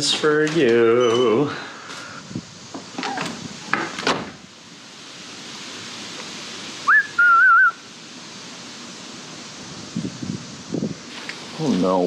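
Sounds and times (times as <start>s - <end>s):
person whistling: 6.9s - 7.8s.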